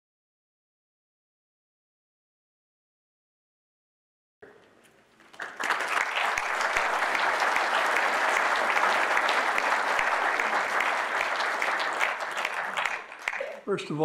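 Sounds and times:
audience applauding: 0:05.2 - 0:14.0.

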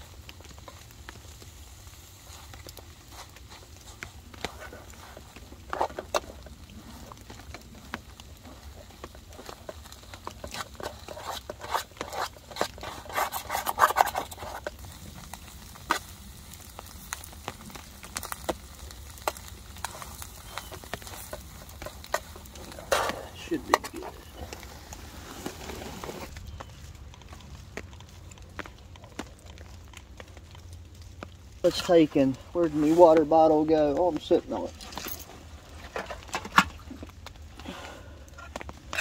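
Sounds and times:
utensil scraping metal lunchbox: 0:10.4 - 0:14.7.

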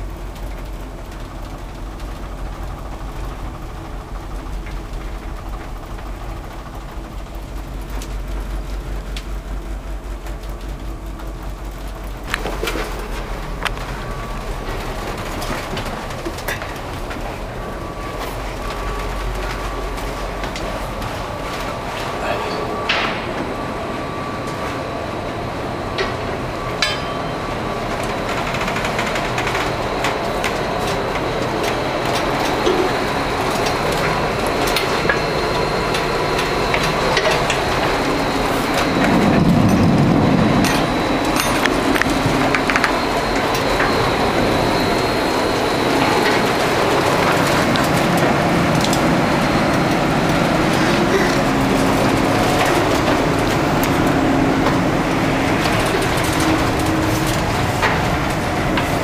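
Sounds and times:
ship engine rumble and hum: 0:00.0 - 0:59.0.

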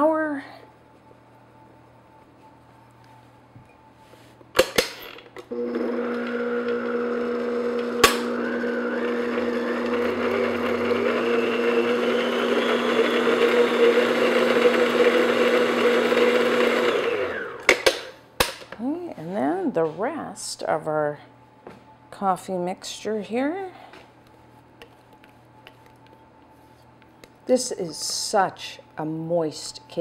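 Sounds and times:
stand mixer motor humming: 0:05.5 - 0:17.7.

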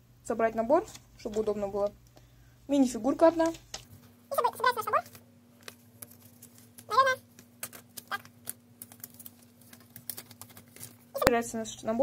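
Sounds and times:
booklet pages flipping: 0:03.2 - 0:11.3.

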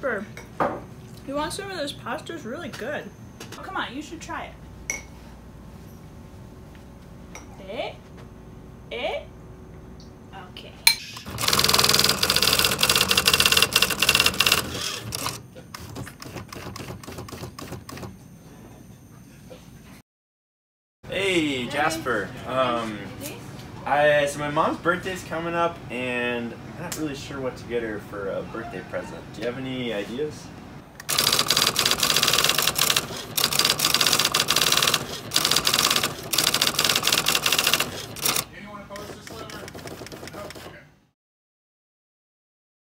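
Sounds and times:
electric typewriter keystrikes: 0:11.2 - 0:18.1, 0:31.0 - 0:40.7.

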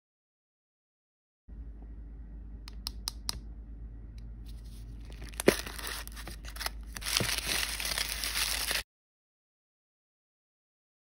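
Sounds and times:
wrapping paper crinkling: 0:04.5 - 0:08.8.

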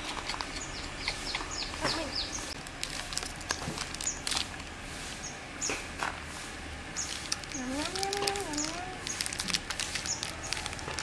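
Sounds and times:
small birds chirping: 0:00.3 - 0:02.6, 0:03.4 - 0:04.4, 0:05.2 - 0:05.9, 0:06.9 - 0:11.0.

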